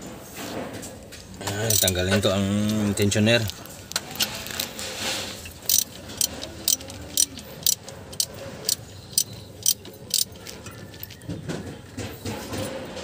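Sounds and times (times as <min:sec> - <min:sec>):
socket wrench ratcheting clicks: 0:01.7 - 0:02.1, 0:05.4 - 0:11.3.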